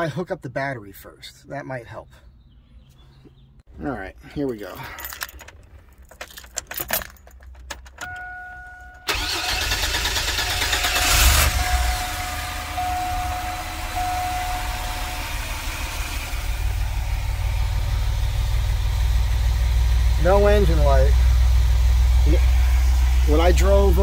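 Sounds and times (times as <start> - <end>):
keys jangling in ignition: 4.5 - 10.0
car engine starting and idling: 4.8 - 24.0
dashboard chime: 8.0 - 9.1, 11.7 - 15.4.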